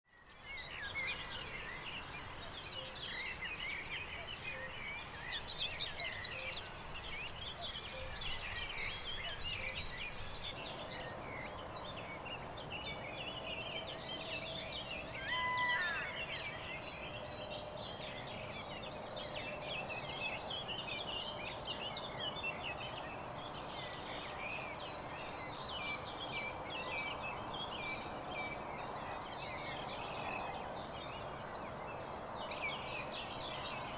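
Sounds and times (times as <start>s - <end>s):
songbirds chorus: 0.1s - 33.9s
loud bird call: 15.2s - 16.5s.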